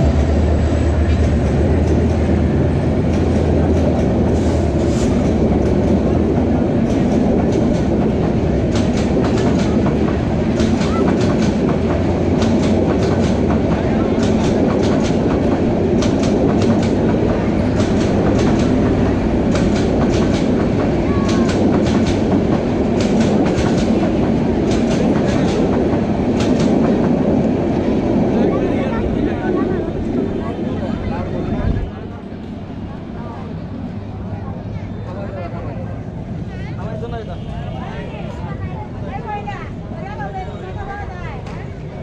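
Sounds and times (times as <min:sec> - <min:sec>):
wheels clacking over rail joints: 0:00.0 - 0:27.6
diesel locomotive drone: 0:00.0 - 0:42.0
train coaches rumbling: 0:00.0 - 0:42.0.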